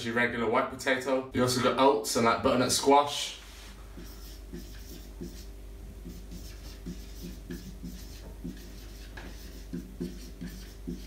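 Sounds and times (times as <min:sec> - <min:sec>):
marker writing on whiteboard: 0:04.0 - 0:11.0.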